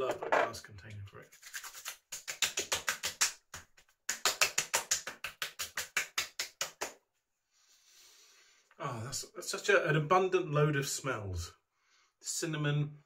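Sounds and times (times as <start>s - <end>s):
palms patting cheeks: 1.5s - 7.0s.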